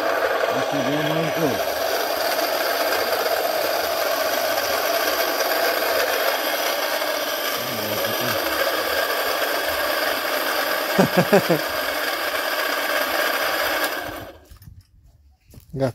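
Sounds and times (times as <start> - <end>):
wheel rim rubbing: 0.0 - 11.0
electric motor whirring: 0.0 - 14.6.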